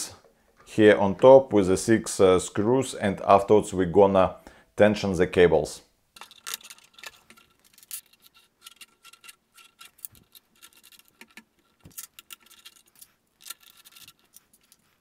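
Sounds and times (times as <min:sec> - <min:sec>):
screws clicking and clinking: 0:06.2 - 0:15.0.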